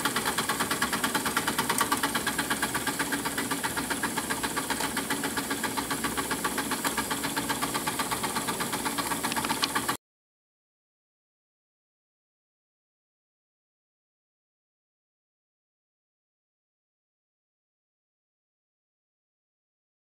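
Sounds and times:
model steam engines chuffing: 0:00.0 - 0:10.0.

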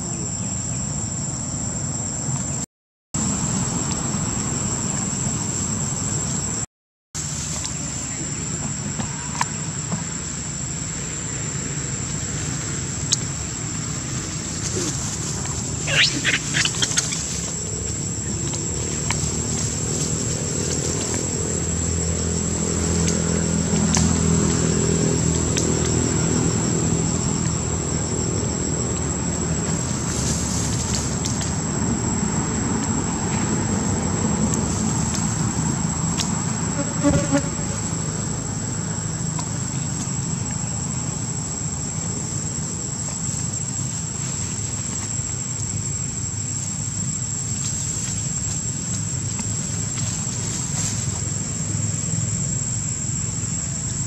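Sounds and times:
insects droning: 0:00.0 - 0:54.0.

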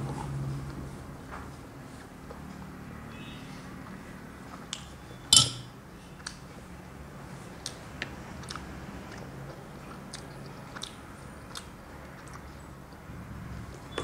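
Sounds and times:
metal spoon clattering on ceramic bowl: 0:05.3 - 0:05.7
soft chewing: 0:08.4 - 0:13.0.

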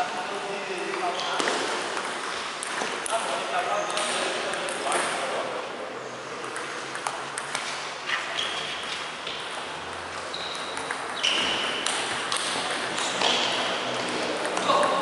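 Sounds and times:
table tennis balls clicking: 0:06.4 - 0:07.8, 0:08.4 - 0:15.0
short high-pitched squeaks: 0:10.3 - 0:11.8.

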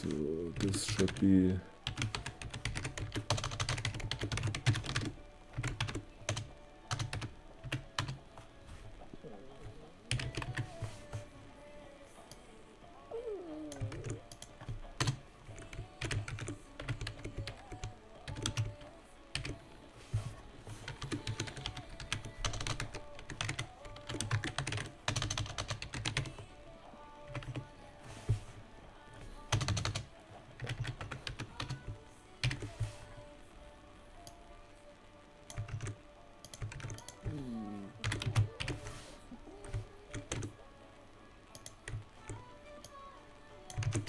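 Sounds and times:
background music: 0:00.0 - 0:44.0
keyboard typing clicks: 0:13.7 - 0:19.6, 0:20.9 - 0:26.4, 0:35.5 - 0:37.3, 0:39.6 - 0:40.5, 0:43.7 - 0:44.0.

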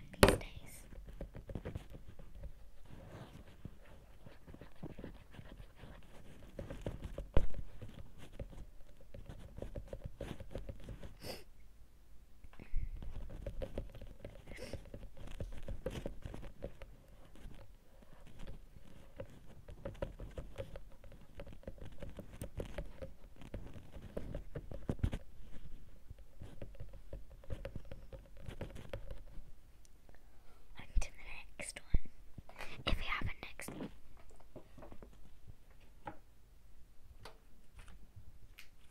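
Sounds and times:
cable rubbing against microphone: 0:00.8 - 0:11.2, 0:13.0 - 0:29.5.

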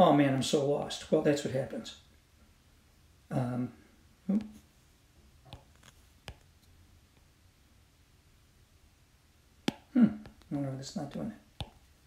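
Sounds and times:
stylus tapping glass screen: 0:05.4 - 0:06.5, 0:09.6 - 0:11.9.

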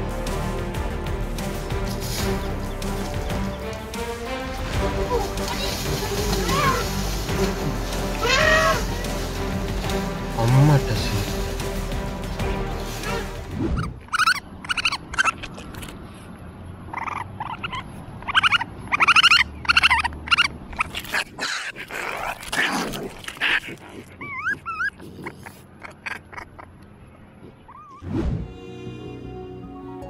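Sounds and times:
raccoon kit whining calls: 0:04.9 - 0:09.5.

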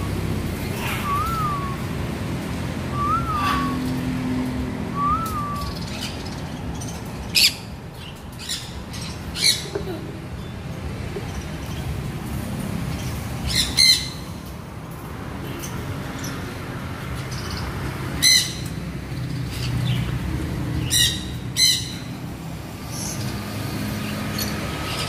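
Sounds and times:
parrot whistles: 0:00.8 - 0:01.9, 0:02.9 - 0:03.8, 0:05.0 - 0:05.8
parrot squawks: 0:03.3 - 0:03.8.

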